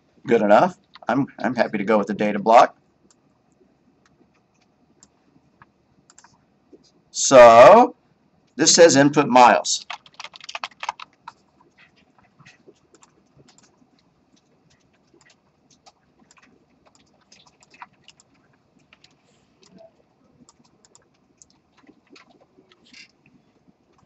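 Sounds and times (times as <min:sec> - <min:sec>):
keyboard and mouse clicking: 0:04.0 - 0:06.4, 0:09.8 - 0:24.0.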